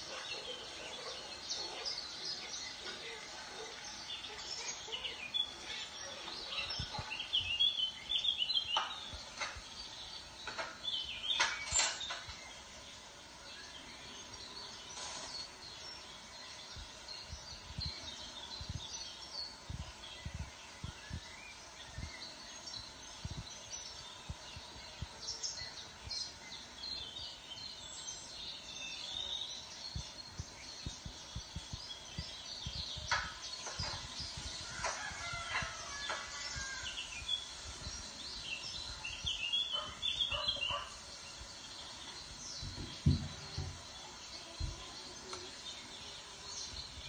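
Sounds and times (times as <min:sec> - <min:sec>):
small birds chirping: 0:00.0 - 0:47.0
low thump: 0:42.6 - 0:43.8.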